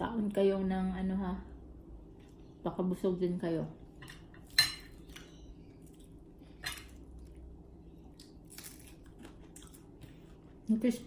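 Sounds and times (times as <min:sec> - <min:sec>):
crunchy fried fish snapping: 0:08.1 - 0:10.0.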